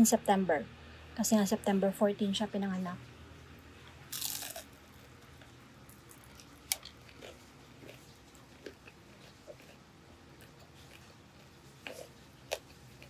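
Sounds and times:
crunchy bite: 4.1 - 5.1
close-up chewing with crunches: 4.1 - 13.0.

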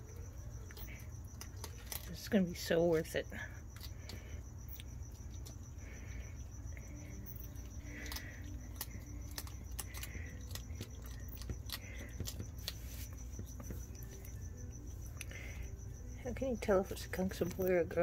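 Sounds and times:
cricket chirping: 0.0 - 18.0
skunks chewing food crunching: 0.0 - 18.0.

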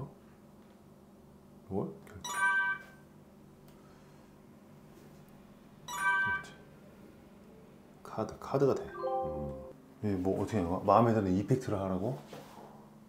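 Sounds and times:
faint steady hum: 0.0 - 13.0
touchscreen chime tones: 5.9 - 6.6, 8.9 - 9.7.

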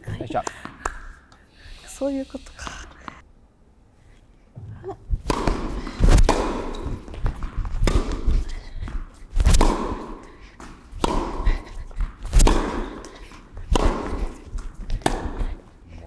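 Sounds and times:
racket striking tennis ball: 5.1 - 15.7
tennis ball bouncing: 5.1 - 15.7.

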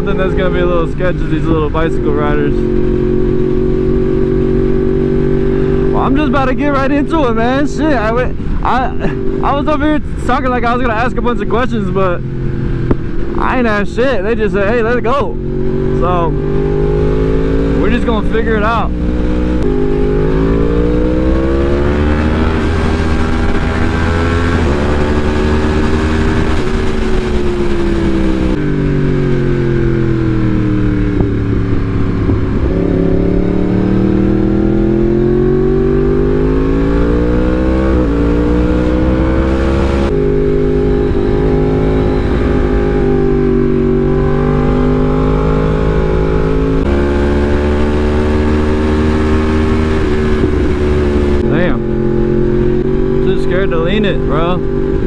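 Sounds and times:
motorcycle engine revving: 0.0 - 55.0
wind on microphone: 18.8 - 53.2.

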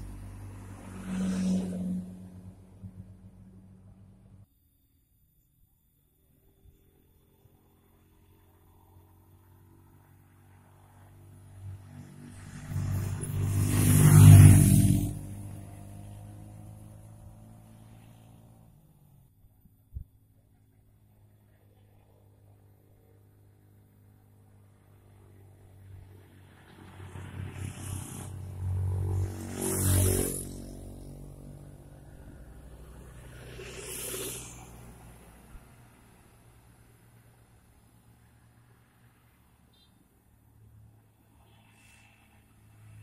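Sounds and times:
motorcycle engine passing by: 0.0 - 4.4, 7.2 - 18.8, 24.6 - 36.4.

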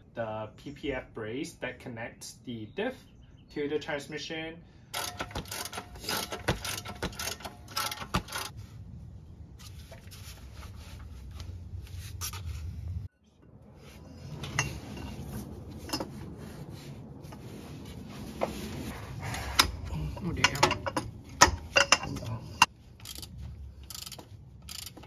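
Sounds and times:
metal tools clinking and scraping: 5.0 - 8.6, 14.2 - 16.2, 19.2 - 25.0
low rubbing and handling noise: 5.1 - 22.7.

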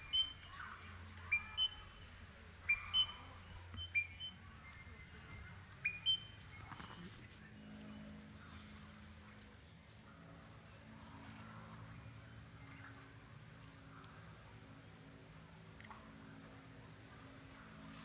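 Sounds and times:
parrot whistled contact call: 5.8 - 7.2.

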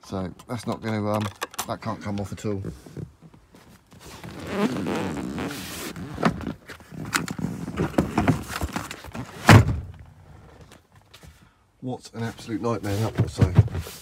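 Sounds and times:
rustling and scraping: 0.4 - 11.4, 12.2 - 14.0
heavy thunk: 9.5 - 9.9.

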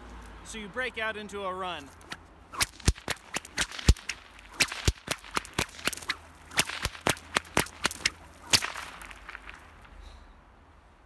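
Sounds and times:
whip cracking: 2.0 - 9.9.

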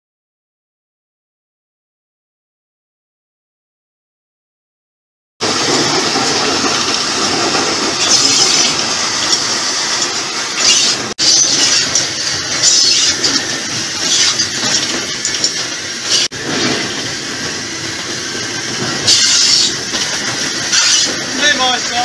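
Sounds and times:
steam locomotive rattle and rush: 5.4 - 22.0.

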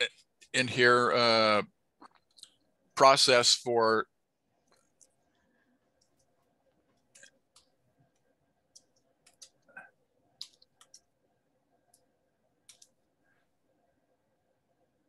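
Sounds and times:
keyboard typing: 6.0 - 9.7, 10.4 - 11.1, 11.8 - 13.0.

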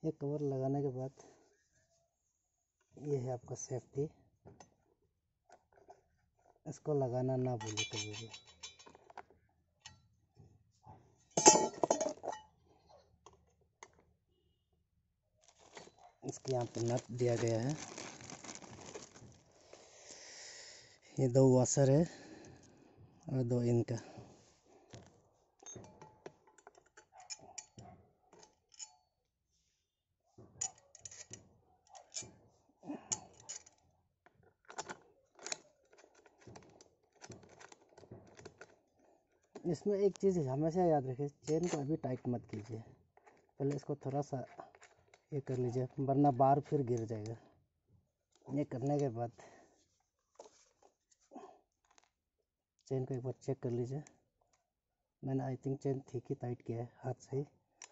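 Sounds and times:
metal tools clattering on concrete: 7.6 - 9.2, 11.4 - 12.5
small metal parts clicking and clattering: 7.6 - 9.3, 15.4 - 19.4, 30.6 - 32.4, 33.0 - 40.3.

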